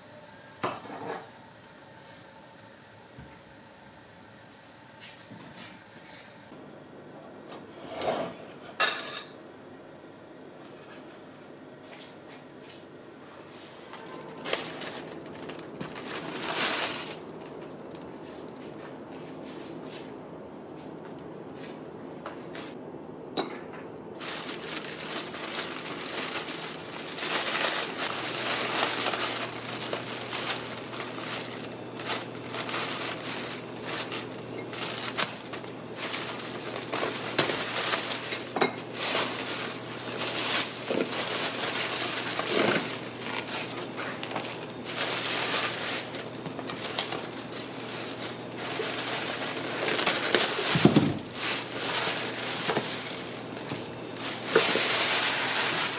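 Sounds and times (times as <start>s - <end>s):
plastic bag rustling and crinkling: 13.9s - 19.6s, 24.2s - 55.9s.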